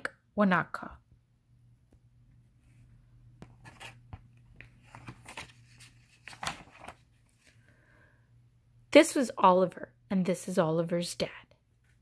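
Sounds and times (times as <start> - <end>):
book pages rustling: 2.6 - 7.6.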